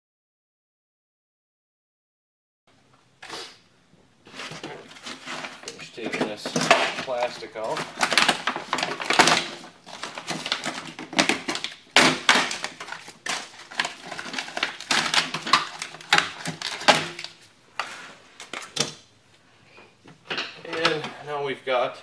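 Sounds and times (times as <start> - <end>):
plastic sheeting crinkling: 4.2 - 18.7.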